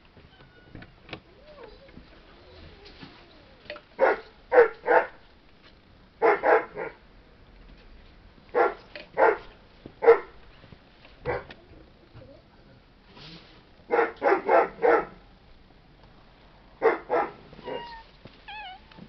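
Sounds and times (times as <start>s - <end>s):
dog barking: 4.0s - 5.2s, 6.2s - 7.0s, 8.5s - 10.4s, 11.2s - 11.5s, 13.9s - 15.2s, 16.8s - 18.0s.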